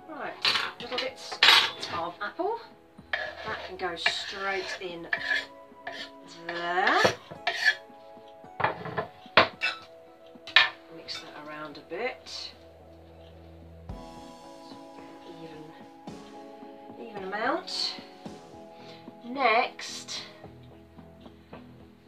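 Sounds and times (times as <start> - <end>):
background music sustained tones: 0.0 - 22.0
scraping food into glass bowl: 3.2 - 6.1.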